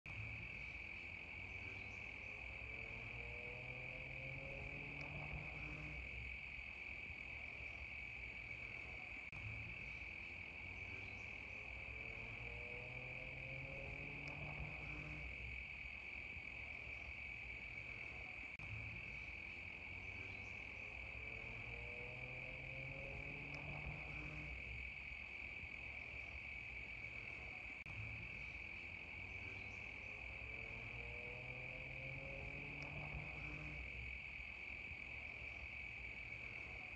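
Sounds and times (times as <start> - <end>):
faint low rising tone: 0.1 - 6.6, 7.3 - 16.0, 16.6 - 24.8
cicadas buzzing: 0.1 - 36.9.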